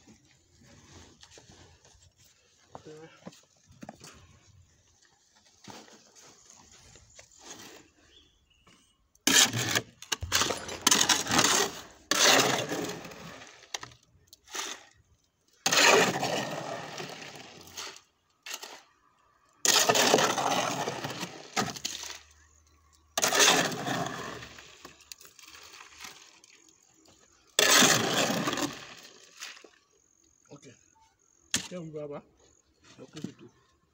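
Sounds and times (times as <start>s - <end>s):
hoe scraping wet concrete: 7.3s - 8.3s, 9.2s - 19.0s, 19.6s - 22.3s, 23.1s - 26.6s, 27.3s - 29.7s.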